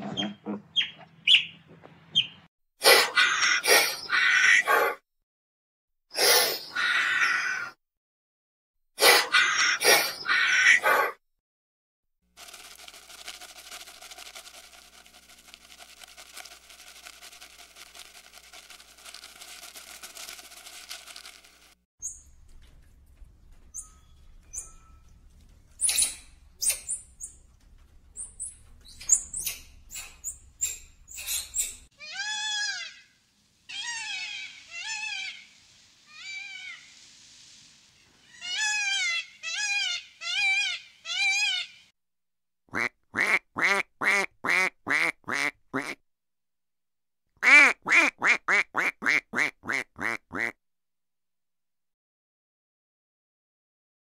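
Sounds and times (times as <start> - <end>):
peacock calling: 28.2 - 37.0, 38.2 - 41.9.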